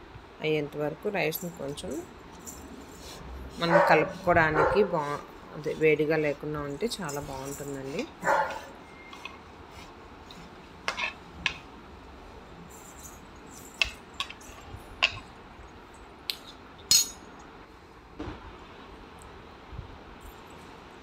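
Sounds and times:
metal spoon stirring in pan: 0:01.6 - 0:11.8.

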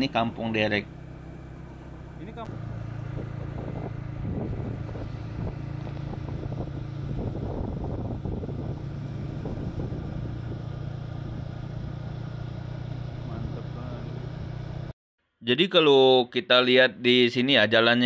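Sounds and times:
road and wind noise: 0:00.0 - 0:14.9
vehicle engine running: 0:00.0 - 0:14.9.

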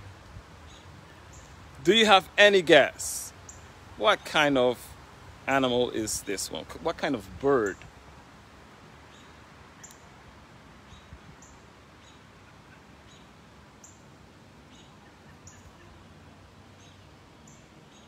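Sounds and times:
faint outdoor hiss: 0:00.0 - 0:18.0
small birds chirping: 0:00.6 - 0:01.8, 0:03.1 - 0:04.8, 0:09.0 - 0:10.2, 0:10.8 - 0:18.0.

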